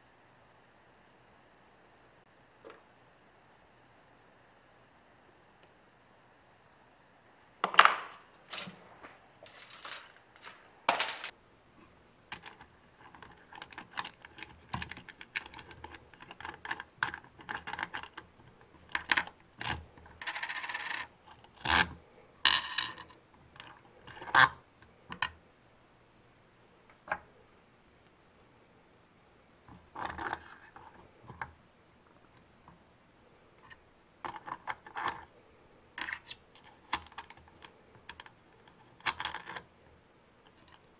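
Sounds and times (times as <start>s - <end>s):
metal hardware clicking and clinking: 7.7s - 8.8s, 9.4s - 11.4s.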